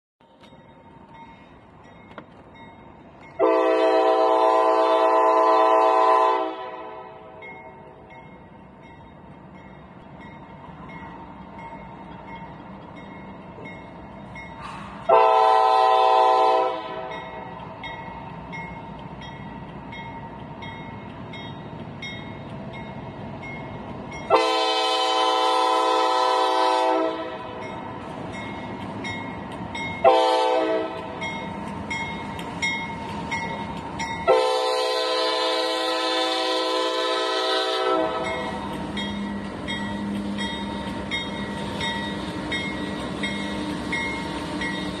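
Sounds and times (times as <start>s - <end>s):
train rumble: 0.2s - 45.0s
crossing bell dinging: 0.3s - 4.2s, 6.8s - 25.1s, 27.1s - 35.9s, 38.0s - 45.0s
locomotive air horn blasts: 3.4s - 7.4s, 15.1s - 17.2s, 24.3s - 27.6s, 30.0s - 31.2s, 34.2s - 38.5s.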